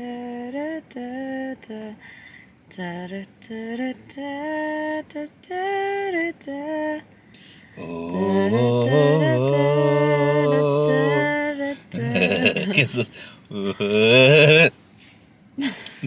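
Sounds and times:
woman singing: 0.0s - 2.0s, 2.7s - 7.0s, 8.0s - 13.1s
man singing low: 7.8s - 14.7s.

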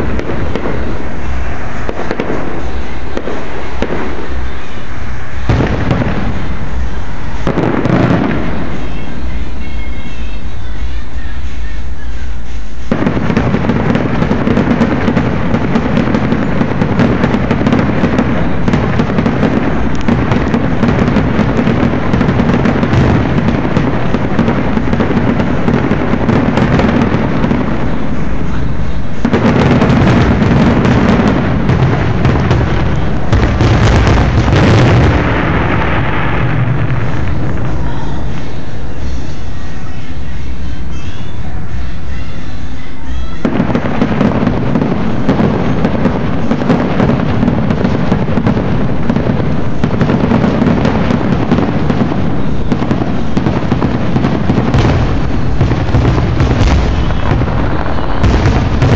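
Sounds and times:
fireworks bangs and crackles: 0.0s - 58.9s.

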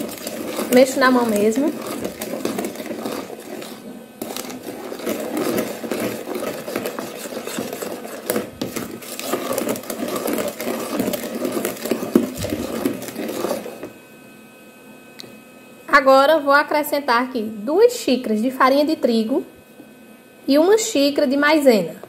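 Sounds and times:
wooden spoon beating batter in bowl: 0.0s - 14.0s.

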